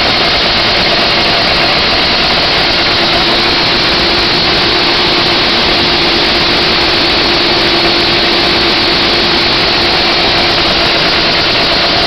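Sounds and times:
snowmobile engine droning: 0:00.0 - 0:12.0.

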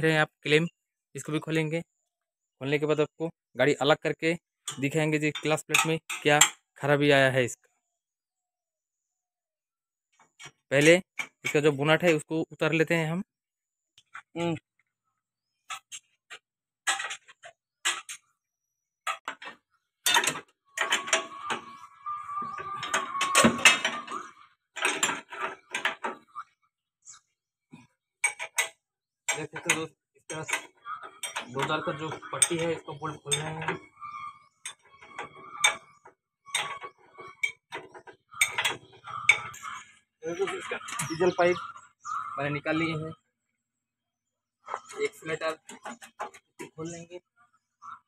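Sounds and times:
spanners clinking on a bolt: 0:04.6 - 0:06.7, 0:16.8 - 0:18.2, 0:19.1 - 0:26.2, 0:28.2 - 0:33.9, 0:34.6 - 0:41.2.

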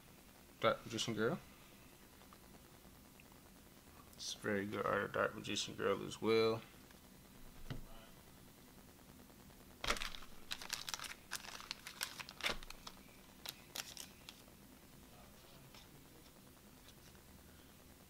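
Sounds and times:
plastic sleeves crinkling: 0:09.8 - 0:14.5.

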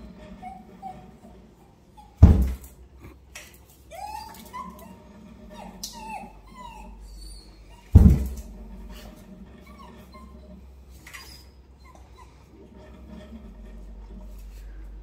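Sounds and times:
dogs whining and yipping: 0:00.0 - 0:02.7, 0:03.8 - 0:12.8.

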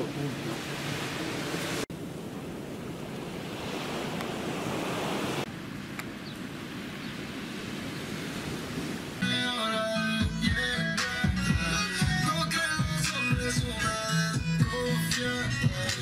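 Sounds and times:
sea surf washing on beach: 0:00.0 - 0:09.2.

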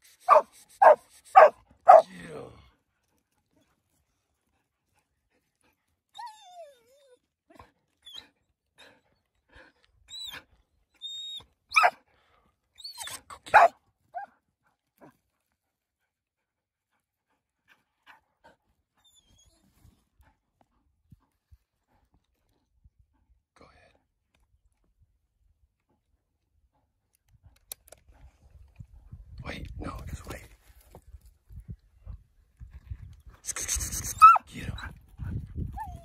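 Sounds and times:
dog barking: 0:00.3 - 0:02.1, 0:11.8 - 0:12.0, 0:13.5 - 0:14.3
dog yipping: 0:00.3 - 0:02.1, 0:11.0 - 0:12.0, 0:12.8 - 0:14.3, 0:34.0 - 0:34.5
dog whining: 0:06.2 - 0:07.2, 0:34.2 - 0:34.5, 0:35.8 - 0:36.0.

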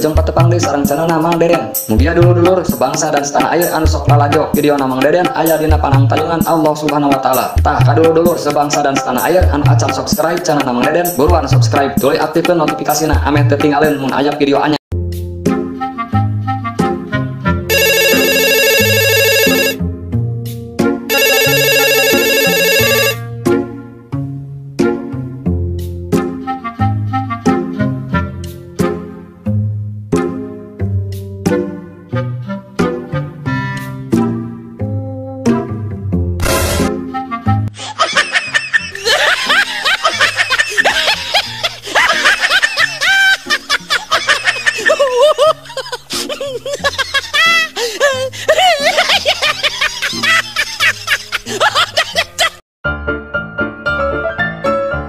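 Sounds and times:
background music: 0:00.0 - 0:55.0
mobile phone ringtone trilling: 0:17.7 - 0:19.8, 0:21.1 - 0:23.2
high-pitched giggling laughter: 0:37.8 - 0:52.6.

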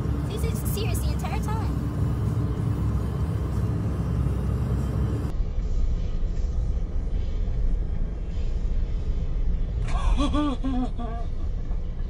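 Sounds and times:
road and tyre rumble: 0:00.0 - 0:12.0.

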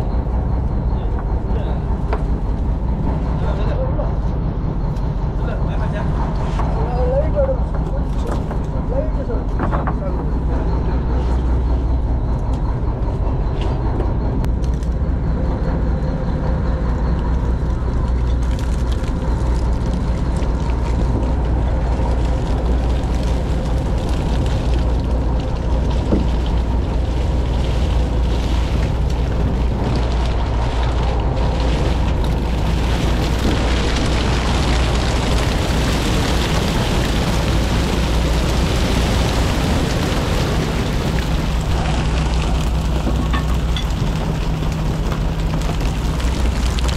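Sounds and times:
boat engine droning: 0:00.0 - 0:46.9.

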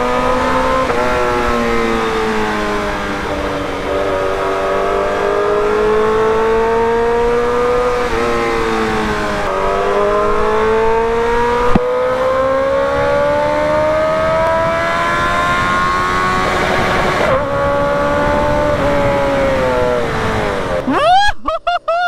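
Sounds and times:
motorcycle engine revving: 0:00.0 - 0:20.9
wind rush: 0:05.6 - 0:20.9.

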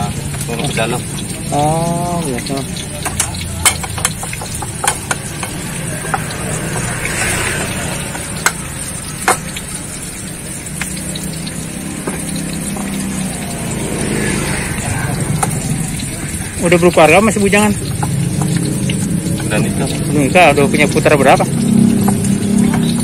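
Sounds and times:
pestle clacking on plate: 0:03.0 - 0:06.9.

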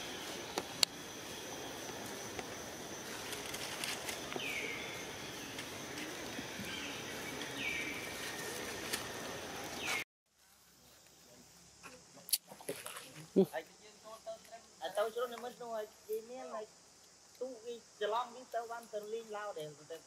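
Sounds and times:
insect drone: 0:00.0 - 0:20.0.

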